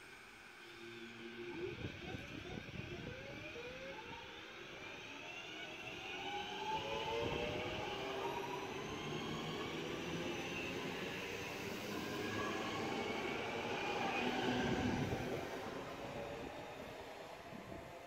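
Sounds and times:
electric train motors whining: 0.1 - 18.0.

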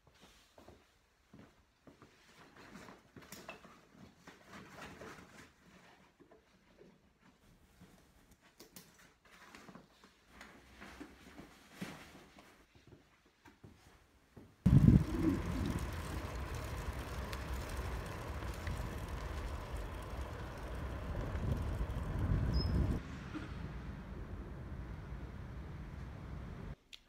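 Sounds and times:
bicycle tyres on asphalt: 14.7 - 26.8.

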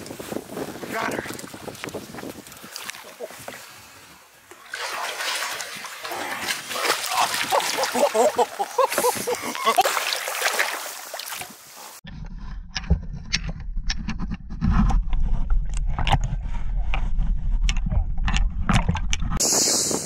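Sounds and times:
water splashing: 1.3 - 12.0
sharp clicks and knocks: 17.6 - 19.4
loud water hiss: 19.4 - 20.0.

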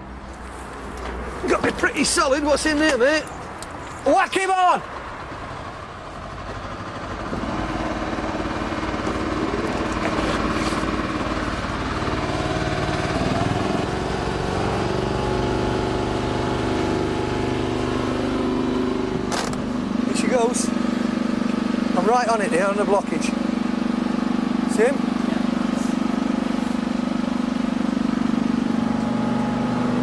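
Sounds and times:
small engine running: 6.2 - 30.0.

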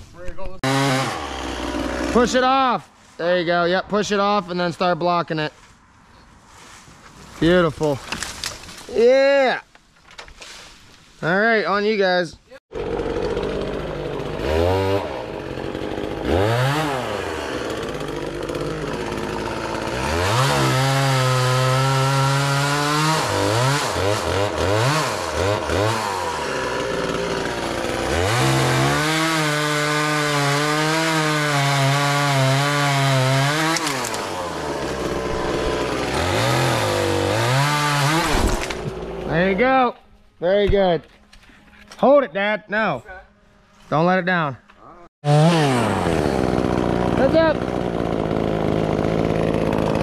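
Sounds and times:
chainsaw revving and cutting: 0.6 - 2.5, 12.7 - 39.6, 45.2 - 50.0.

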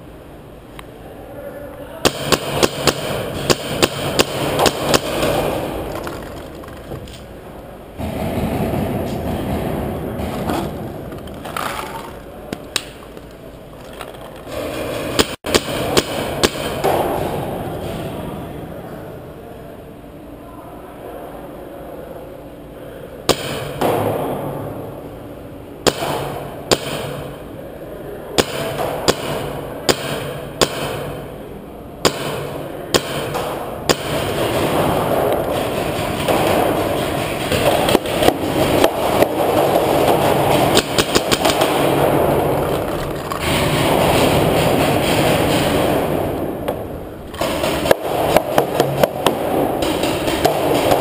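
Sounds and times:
paintball markers firing: 2.0 - 7.2, 32.1 - 51.0.

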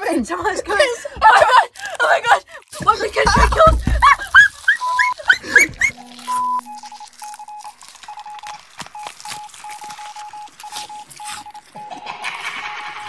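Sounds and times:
short electronic beeps: 4.8 - 13.0.

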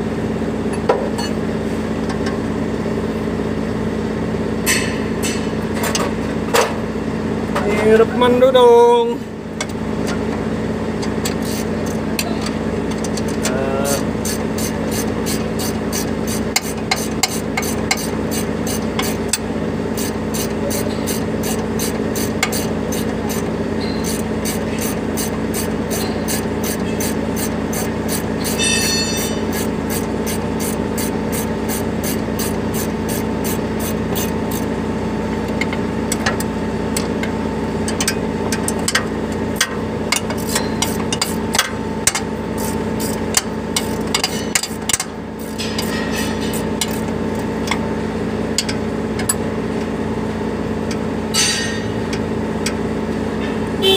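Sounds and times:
engine idling: 0.0 - 53.9
hand tools clinking on metal: 24.8 - 29.6, 43.0 - 47.0.

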